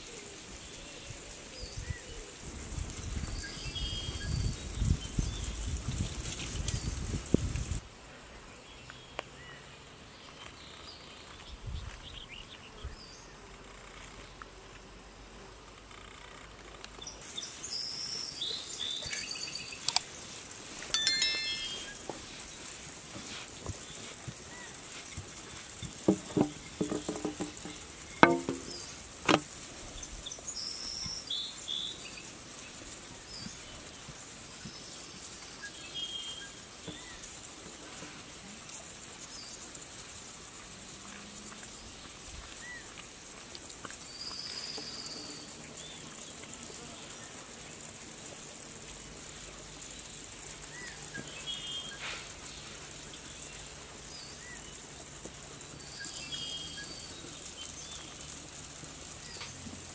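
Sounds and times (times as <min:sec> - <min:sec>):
steady high hiss: 0:00.0 - 0:59.9
bird chirps: 0:21.0 - 0:22.1
rolling pin knocking on metal tray: 0:26.1 - 0:29.4.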